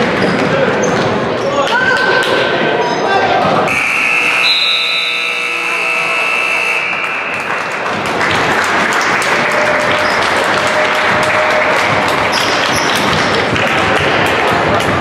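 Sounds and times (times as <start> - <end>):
scoreboard buzzer: 3.7 - 7.5
spectators applauding: 5.7 - 15.0.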